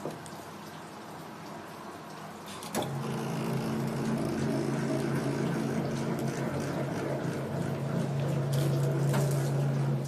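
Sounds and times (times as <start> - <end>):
small electric motor humming: 2.9 - 6.8.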